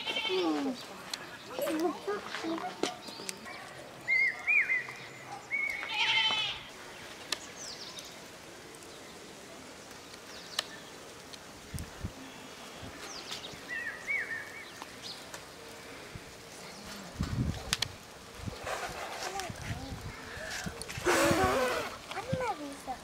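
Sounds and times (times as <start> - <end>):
goat bleating: 0.0 - 0.8, 5.8 - 6.7
birds chirping: 0.0 - 23.0.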